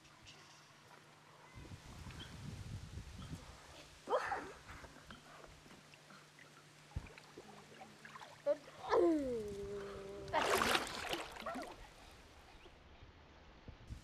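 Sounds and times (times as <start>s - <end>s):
water splashing: 5.8s - 12.1s.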